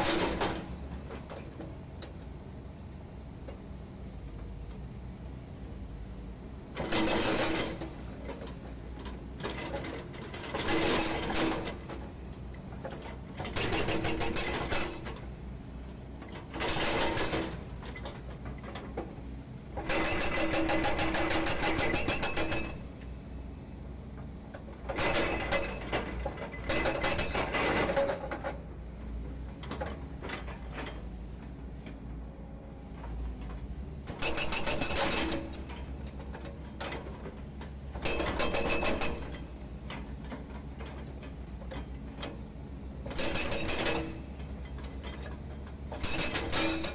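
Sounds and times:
hydraulic breaker hammering concrete: 0:13.6 - 0:15.1, 0:19.8 - 0:22.8, 0:46.1 - 0:46.9.

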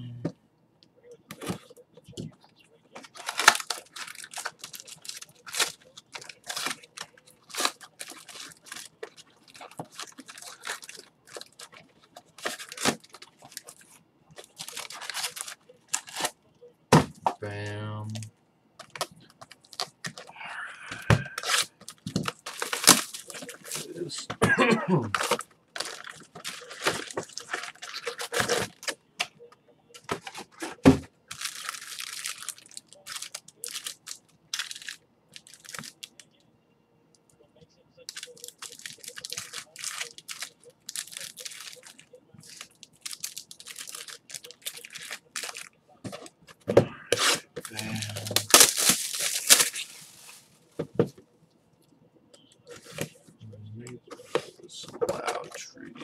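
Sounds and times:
plastic wrapping crinkling and tearing: 0:02.9 - 0:16.4, 0:18.8 - 0:20.3, 0:21.3 - 0:24.2, 0:25.1 - 0:29.3, 0:30.0 - 0:36.4, 0:38.1 - 0:50.8.

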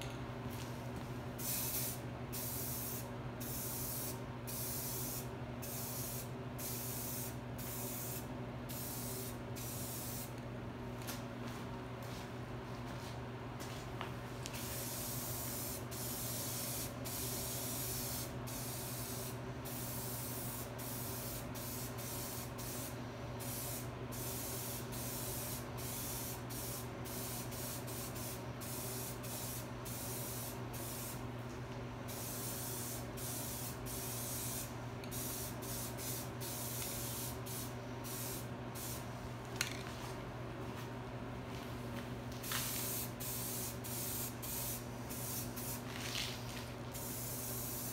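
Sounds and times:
spray paint can hissing: 0:01.4 - 0:10.3, 0:14.6 - 0:31.2, 0:32.1 - 0:39.0, 0:42.4 - 0:46.4, 0:47.0 - 0:47.9.

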